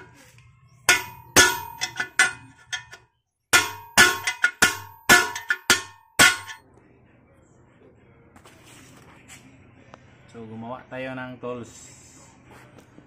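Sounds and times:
hammer striking steel punch: 0:00.9 - 0:03.0, 0:03.6 - 0:06.6.

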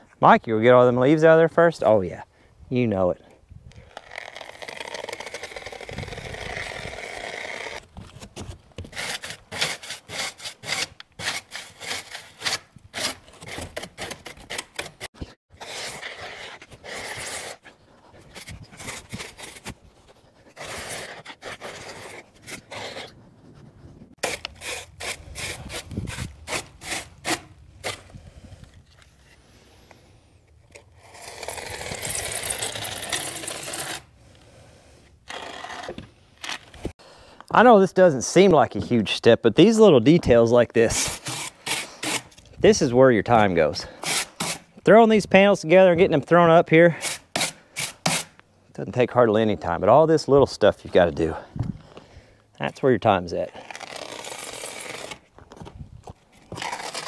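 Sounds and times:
scratchy rubbing and scraping: 0:03.8 - 0:29.5, 0:30.7 - 0:34.1, 0:40.8 - 0:44.7, 0:52.7 - 0:57.0.

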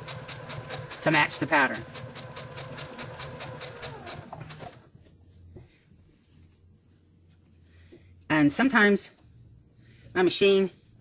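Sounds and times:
sewing machine stitching: 0:00.0 - 0:04.8.

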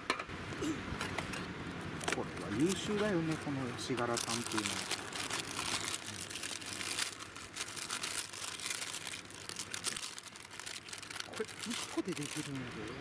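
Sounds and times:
plastic packaging crinkling: 0:02.0 - 0:13.0.

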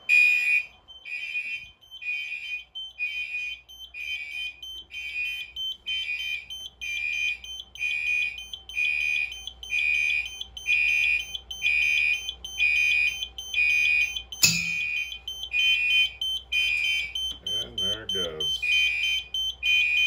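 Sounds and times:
fire alarm pulsing beeps: 0:00.0 - 0:20.0
sharp click: 0:14.4 - 0:14.9.

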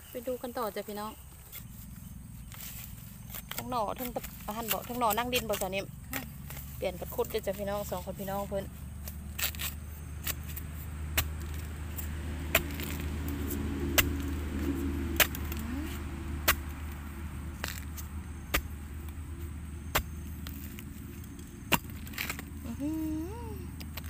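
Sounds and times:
low steady rumble: 0:00.0 - 0:24.0
metal tool chopping into soil: 0:09.0 - 0:19.2, 0:19.8 - 0:22.7.

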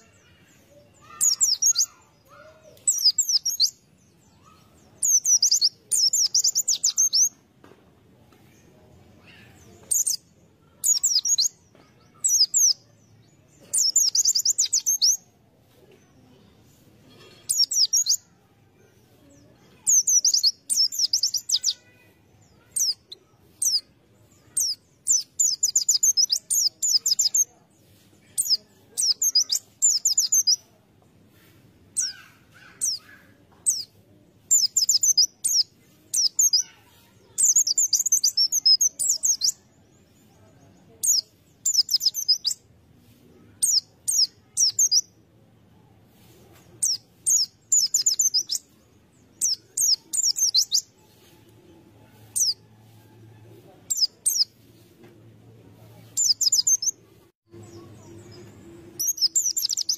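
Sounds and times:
bird twittering: 0:59.0 - 0:59.9.

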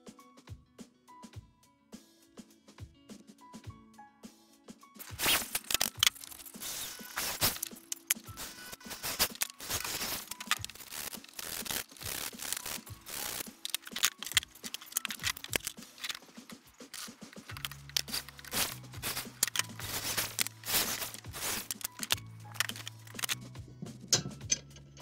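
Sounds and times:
faint background music: 0:00.0 - 0:25.0
steel pieces clattering on wood: 0:05.0 - 0:23.4, 0:24.2 - 0:25.0.

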